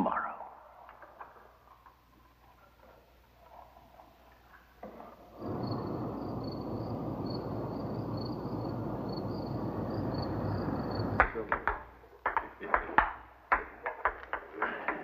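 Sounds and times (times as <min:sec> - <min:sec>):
crickets chirping: 0:03.0 - 0:11.3
steady rushing background noise: 0:05.4 - 0:11.3.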